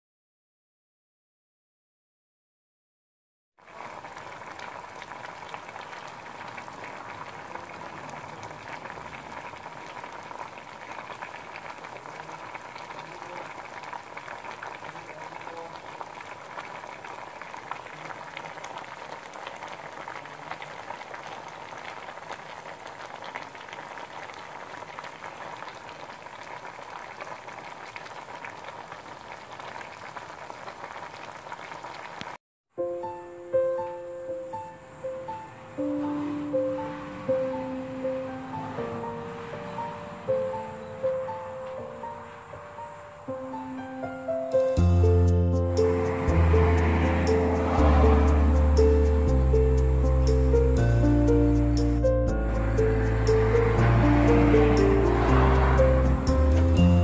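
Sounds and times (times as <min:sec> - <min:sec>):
water boiling in metal pot: 0:03.6 - 0:32.4, 0:52.5 - 0:57.0.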